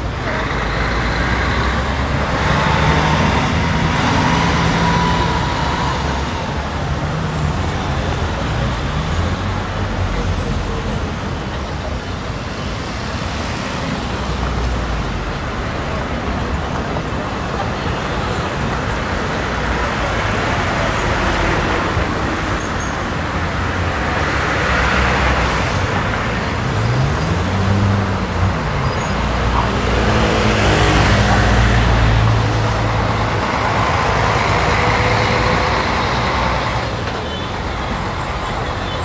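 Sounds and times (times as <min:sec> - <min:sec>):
traffic rumble: 0:00.0 - 0:39.0
engine revving: 0:00.4 - 0:07.2.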